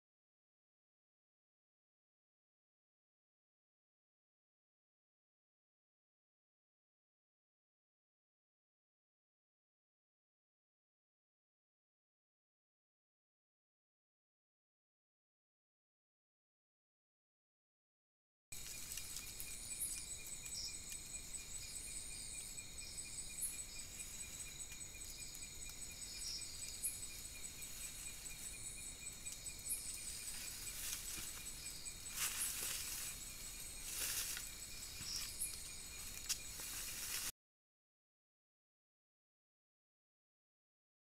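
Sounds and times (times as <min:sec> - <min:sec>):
insects trilling: 0:18.6 - 0:37.3.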